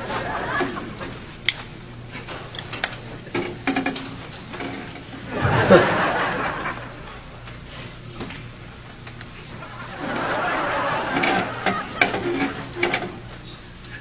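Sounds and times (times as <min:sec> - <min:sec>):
steady low hum: 0:00.0 - 0:14.0
man chuckling: 0:09.4 - 0:12.8.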